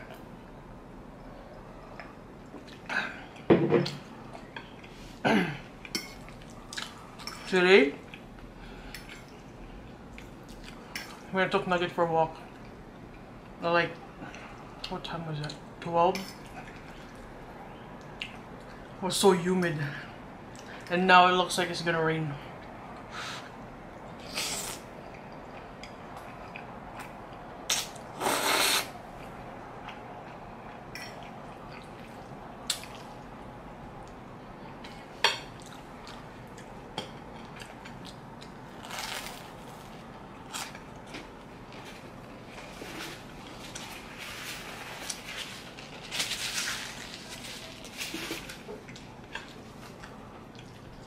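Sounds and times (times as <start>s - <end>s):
person chewing food: 5.8s - 7.4s, 23.9s - 33.4s, 34.8s - 46.0s, 48.3s - 51.0s
spaghetti slurping: 27.7s - 28.9s
hissy mouth noise: 27.7s - 29.0s.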